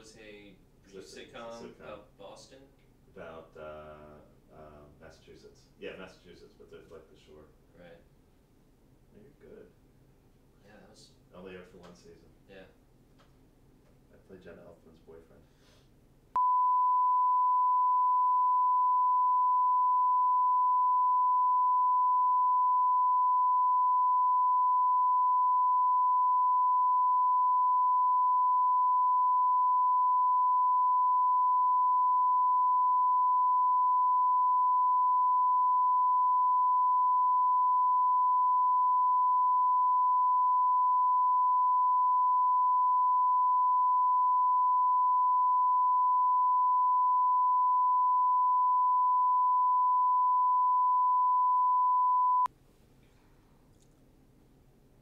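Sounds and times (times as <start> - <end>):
pure reference tone: 16.3 - 52.5.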